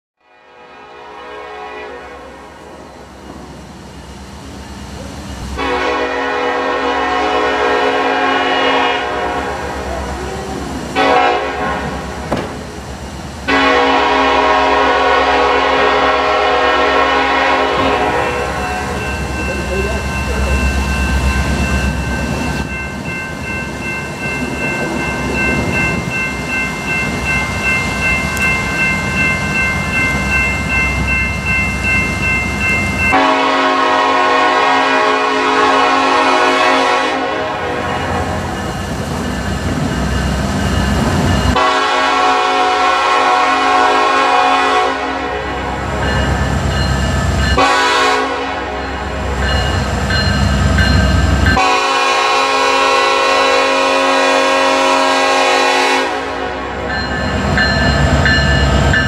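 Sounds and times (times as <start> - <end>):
locomotive air horn blasts: 0.2 - 2.6, 5.6 - 12.2, 13.5 - 18.9, 33.1 - 38.4, 41.6 - 45.9, 47.6 - 49.4, 51.5 - 56.9
freight train rumble: 0.4 - 59.0
crossing bell ringing: 2.0 - 59.0.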